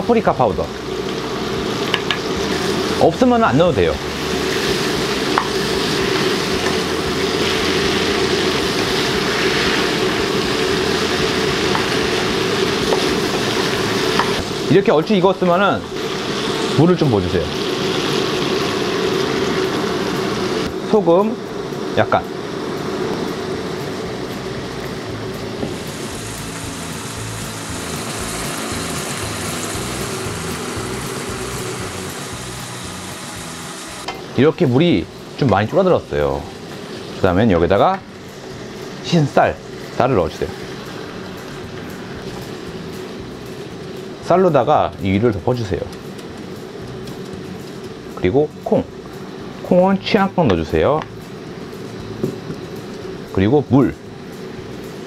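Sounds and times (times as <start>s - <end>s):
food sizzling in a frying pan: 0.0s - 53.4s
water boiling with bubbling hiss: 0.0s - 55.0s
background music with bass line: 23.4s - 34.1s.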